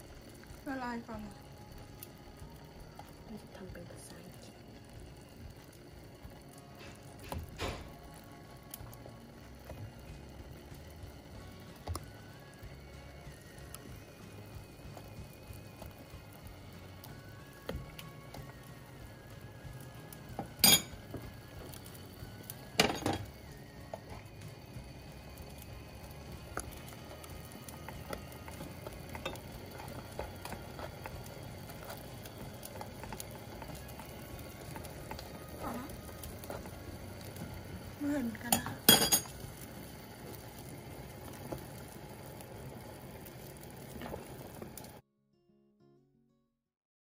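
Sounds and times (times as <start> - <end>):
metal spoon clinking on pot: 20.6 - 21.0, 38.5 - 39.4.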